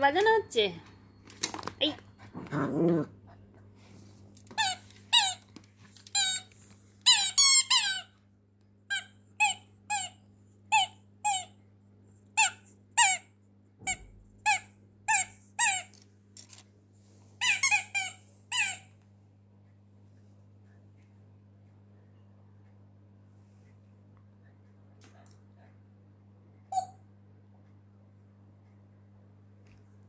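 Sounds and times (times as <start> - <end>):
low steady hum: 0.0 - 30.0
squeaky toy squeaking: 4.6 - 5.4, 6.1 - 6.5, 7.1 - 8.1, 8.9 - 11.6, 12.4 - 13.3, 13.9 - 15.9, 17.4 - 18.9.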